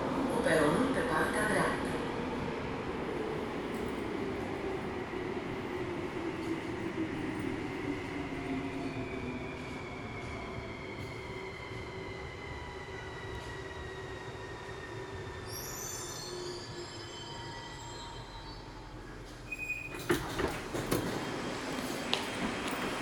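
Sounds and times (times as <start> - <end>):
high brake squeal: 15.4 - 18.8, 19.5 - 20.1
train clunks and knocks: 19.2 - 23.0.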